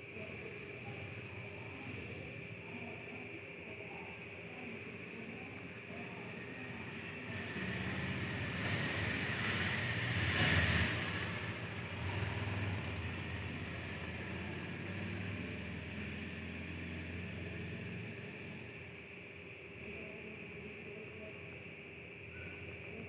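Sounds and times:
low engine hum: 7.2s - 19.0s
vehicle passing by: 7.3s - 18.7s.

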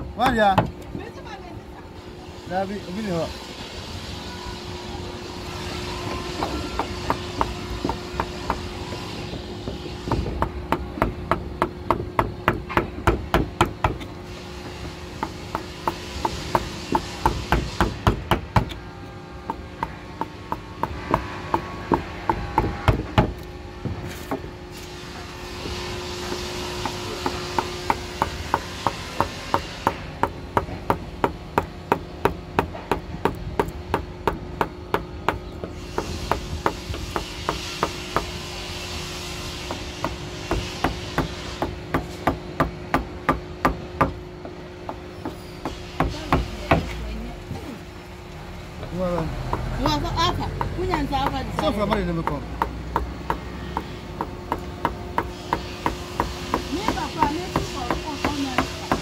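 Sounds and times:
chisel tapping into wood: 25.6s - 38.3s, 50.5s - 59.0s.

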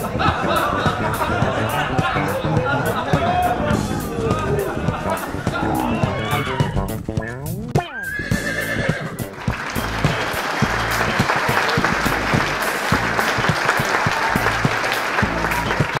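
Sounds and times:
background music with steady beat: 0.0s - 16.0s
applause: 9.3s - 16.0s.

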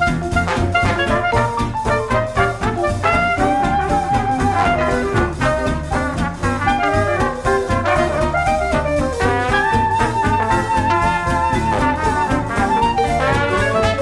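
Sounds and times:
jazz music with brass: 0.0s - 14.0s.

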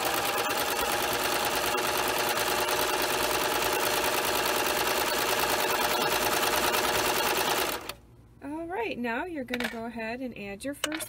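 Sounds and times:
overlock machine stitching: 0.0s - 8.0s.

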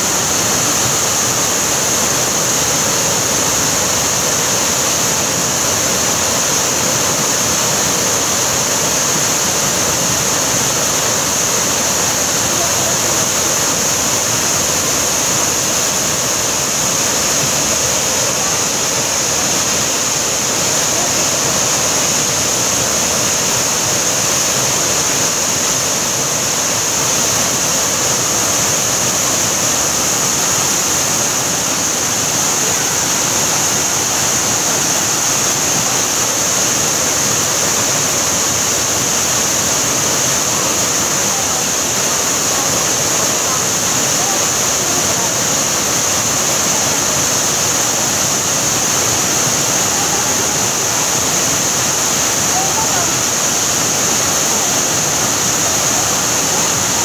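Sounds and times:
waterfall rushing: 0.0s - 57.0s.

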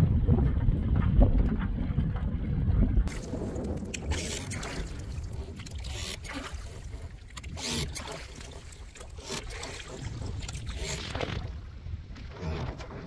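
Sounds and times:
wind on microphone: 0.0s - 8.5s
water rushing along hull: 0.0s - 13.0s.

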